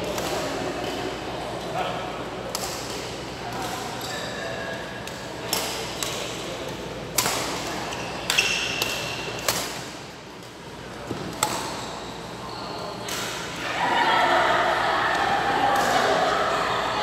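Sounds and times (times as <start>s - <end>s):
badminton rackets hitting shuttlecock: 7.1s - 10.0s.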